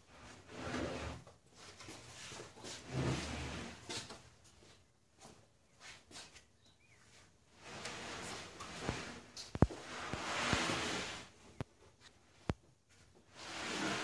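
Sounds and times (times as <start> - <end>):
wood scraping: 7.5 - 12.2, 13.3 - 14.0.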